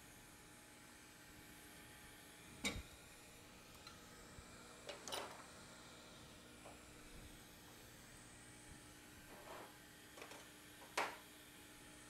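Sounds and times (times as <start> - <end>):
knocks on workbench: 10.2 - 11.2.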